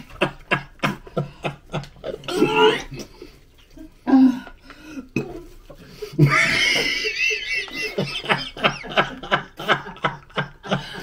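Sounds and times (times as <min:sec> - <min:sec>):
person gagging and throat-clearing: 0:01.8 - 0:03.2, 0:05.1 - 0:05.5.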